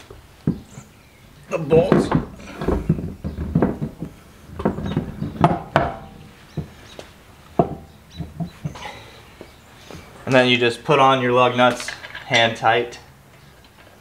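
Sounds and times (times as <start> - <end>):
wheel rim knocking and scraping: 0.0 - 10.4.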